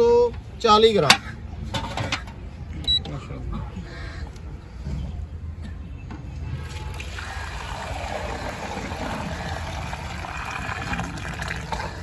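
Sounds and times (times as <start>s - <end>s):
milk pouring into metal pot: 6.9s - 12.0s.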